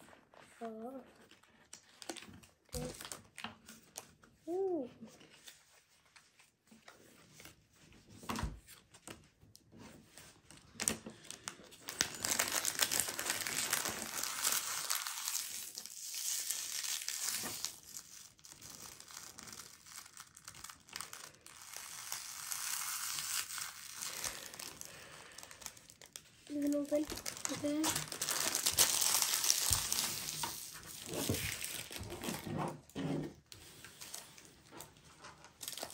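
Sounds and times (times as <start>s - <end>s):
wrapper crinkling and tearing: 1.1s - 4.2s, 10.5s - 32.9s, 33.5s - 35.9s.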